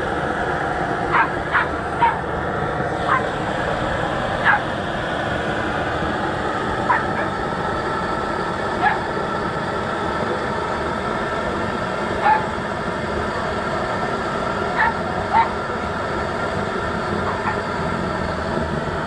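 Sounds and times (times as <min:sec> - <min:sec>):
steady rushing noise: 0:00.0 - 0:19.0
dog yelping: 0:01.1 - 0:02.3, 0:03.1 - 0:03.3, 0:04.4 - 0:04.7, 0:06.9 - 0:07.3, 0:08.8 - 0:09.1, 0:12.2 - 0:12.5, 0:14.8 - 0:15.6, 0:17.2 - 0:17.7.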